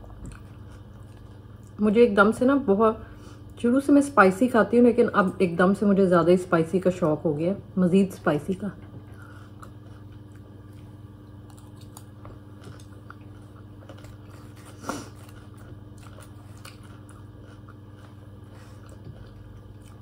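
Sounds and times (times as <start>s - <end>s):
person chewing food: 0.0s - 1.8s, 8.8s - 20.0s
low room hum: 0.0s - 20.0s.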